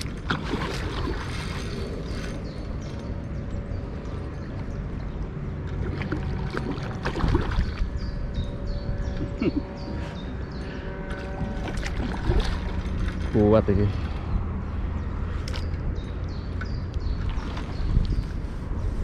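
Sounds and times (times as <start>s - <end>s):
wind buffeting microphone: 6.5s - 19.0s.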